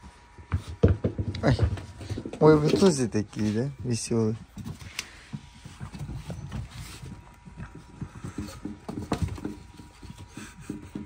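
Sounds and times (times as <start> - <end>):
puppy paws pattering: 1.3 - 11.0.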